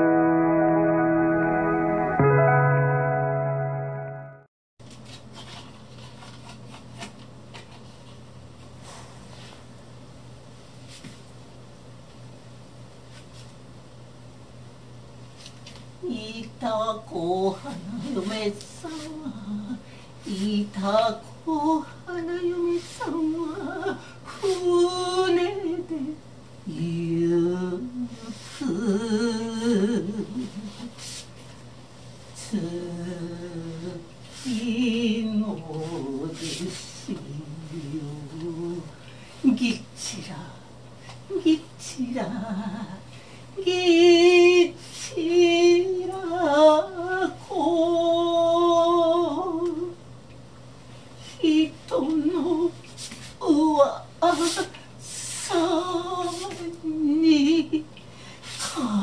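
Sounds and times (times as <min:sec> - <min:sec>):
woman singing unaccompanied: 0:16.0 - 0:30.9, 0:32.4 - 0:40.6, 0:41.3 - 0:50.0, 0:51.4 - 0:52.8, 0:53.4 - 0:57.9, 0:58.6 - 0:59.0.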